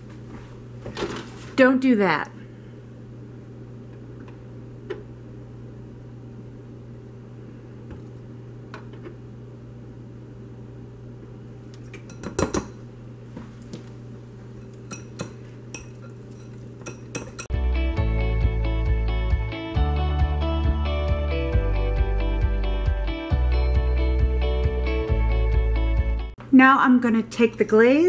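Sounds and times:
steady low hum: 0.0s - 17.5s
utensils clinking on ceramic bowl: 11.9s - 12.8s, 14.6s - 17.5s.

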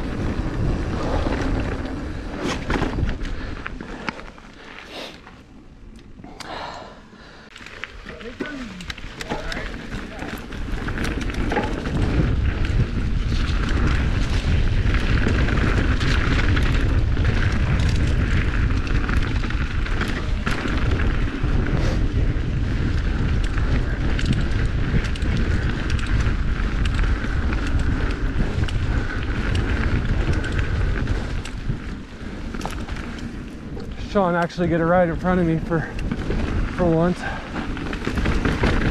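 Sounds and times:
wind buffeting microphone: 0.0s - 4.3s, 6.1s - 38.9s
bike clattering over bumps: 0.0s - 4.8s, 7.5s - 38.9s
tyre noise on dirt: 0.0s - 6.4s, 7.5s - 38.9s.

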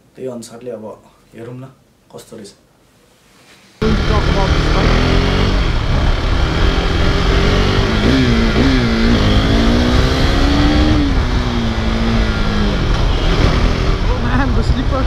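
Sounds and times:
motorcycle engine running: 3.8s - 15.0s.

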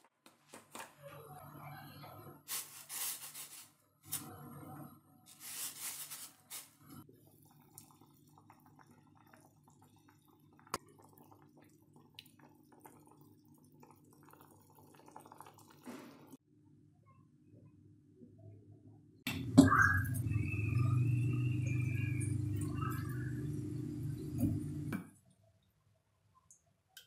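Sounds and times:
pot boiling with bubbling: 6.7s - 16.4s, 19.3s - 25.1s.

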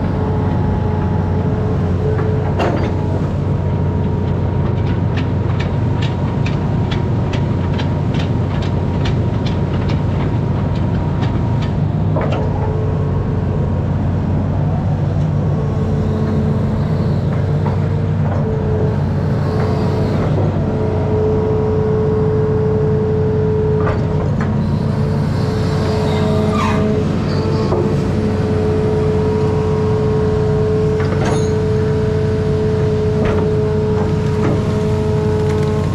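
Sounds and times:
diesel engine running: 0.0s - 35.9s
steady whine: 12.1s - 35.9s.

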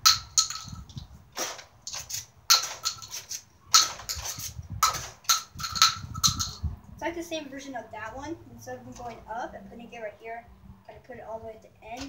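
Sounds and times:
plastic shells clattering on concrete: 0.0s - 6.6s
toy blaster pumped and fired: 1.4s - 6.5s.

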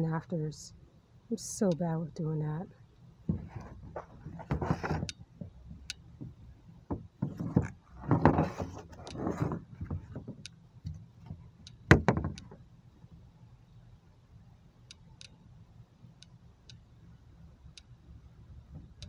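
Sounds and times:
plastic pieces scraping and knocking: 3.3s - 5.1s, 7.2s - 10.4s
faint rustling: 3.3s - 5.6s, 7.2s - 10.4s.

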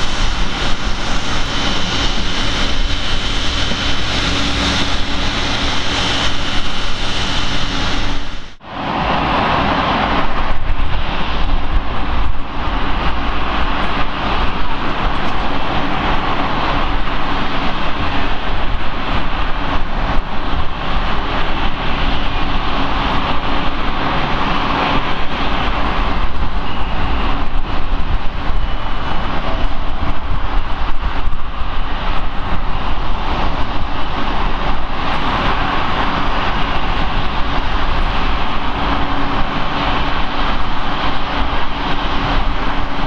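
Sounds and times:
jet engines running: 0.0s - 43.0s.

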